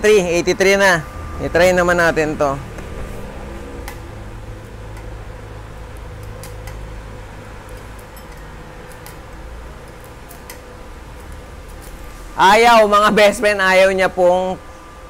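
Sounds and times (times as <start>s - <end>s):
low welder hum: 0.0s - 15.0s
welding rod crackles and clicks: 3.8s - 12.2s.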